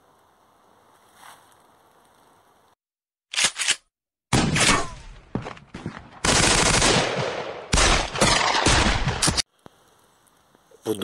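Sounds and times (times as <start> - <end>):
rapid gunfire: 6.2 - 9.4.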